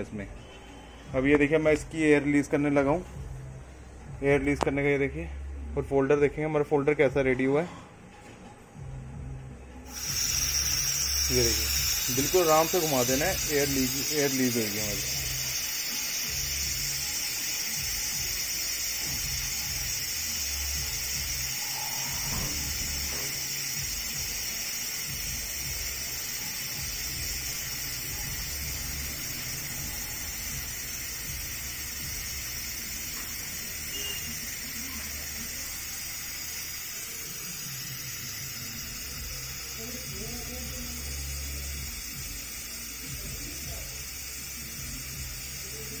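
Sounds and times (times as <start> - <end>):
compressed air hissing from valve: 9.8 - 46.0.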